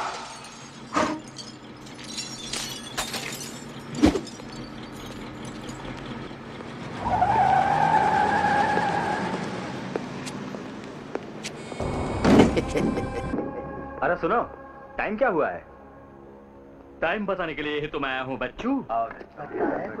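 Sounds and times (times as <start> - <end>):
car tyres squealing: 0.0 - 10.8.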